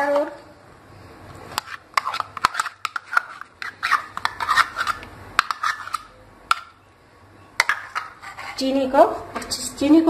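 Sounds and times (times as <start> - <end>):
metal spoon scraping plastic bowl: 1.6 - 6.1.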